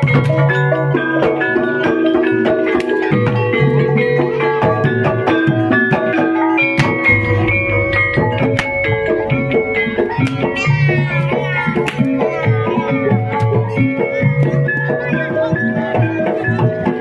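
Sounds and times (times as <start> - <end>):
hand drums: 0.0 - 17.0
kettle gongs and metallophones: 0.0 - 17.0
deep low gong part: 7.0 - 11.4.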